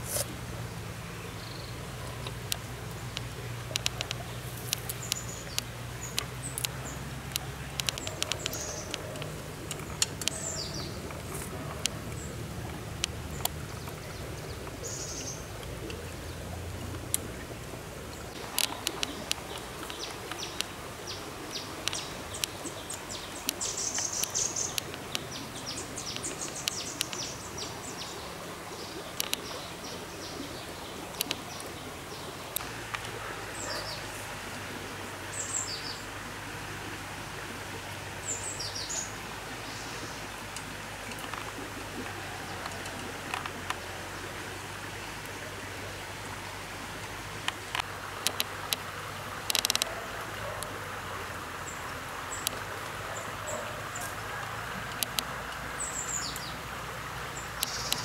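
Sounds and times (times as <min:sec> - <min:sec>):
birds chirping: 0:00.0 - 0:36.2, 0:37.8 - 0:45.6, 0:47.0 - 0:58.0
stream hissing: 0:00.0 - 0:58.0
sharp clicks: 0:02.0 - 0:12.0, 0:18.4 - 0:20.8, 0:21.8 - 0:25.4, 0:26.1 - 0:27.3, 0:29.2 - 0:29.5, 0:47.4 - 0:49.9, 0:54.9 - 0:55.3, 0:57.6 - 0:58.0.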